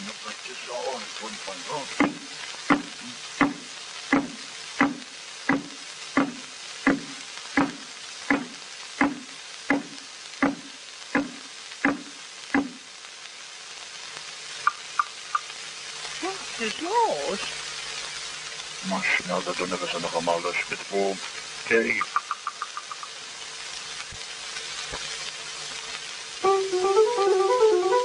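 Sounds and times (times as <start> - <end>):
film soundtrack crackle and hiss: 0.0 - 28.0
cartoon marching footsteps: 2.0 - 3.6, 4.2 - 12.8.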